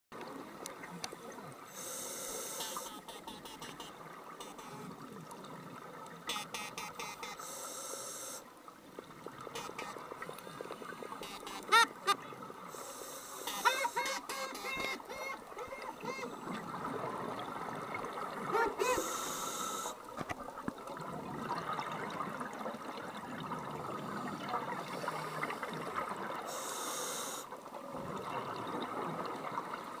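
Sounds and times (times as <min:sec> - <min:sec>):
regulator inhalation hiss: 0:01.7 - 0:03.0, 0:07.1 - 0:08.5, 0:12.7 - 0:14.1, 0:18.8 - 0:20.0, 0:26.4 - 0:27.5
exhaled bubbles gurgling: 0:15.4 - 0:19.2, 0:20.0 - 0:26.5, 0:27.6 - 0:30.0.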